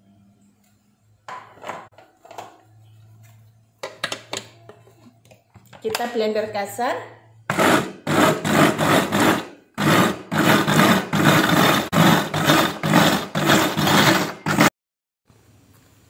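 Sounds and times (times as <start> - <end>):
electric food chopper running: 7.5 - 14.7.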